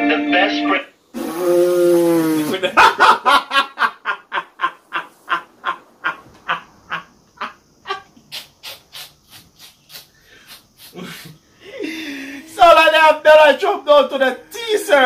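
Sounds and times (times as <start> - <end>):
men laughing hard: 2.4 - 8.3, 9.4 - 12.5.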